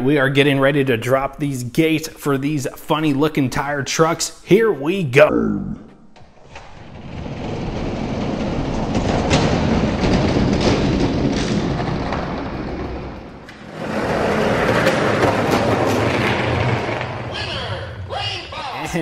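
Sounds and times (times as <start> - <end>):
toy trucks rolling on plastic track: 6.7 - 17.9.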